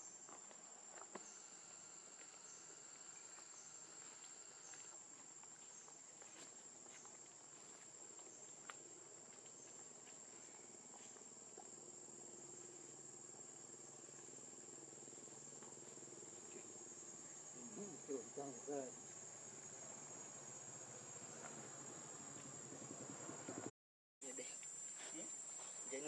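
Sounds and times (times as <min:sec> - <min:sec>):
high-pitched insect drone: 0:01.0 - 0:05.0, 0:11.9 - 0:26.0.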